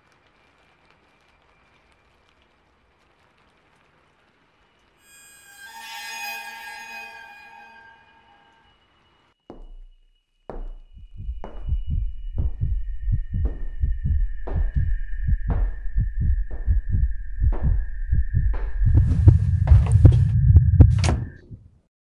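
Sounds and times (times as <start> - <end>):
steady high-pitched tone: 5.0 - 9.4, 10.7 - 20.8
heartbeat double thump: 9.5 - 21.6.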